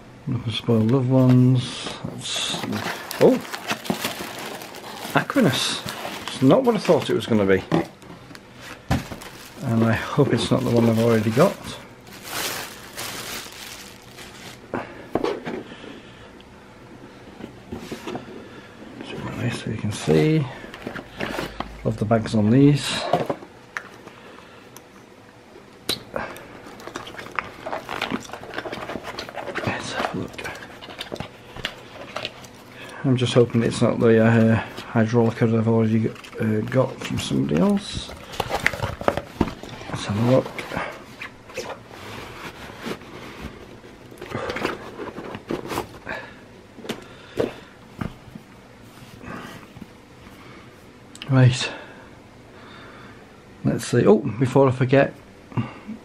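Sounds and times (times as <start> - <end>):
dry bag rustling and crinkling: 0.7 - 7.7, 8.6 - 14.7, 26.6 - 46.1
fabric bag rustling: 2.8 - 7.0, 8.7 - 14.7.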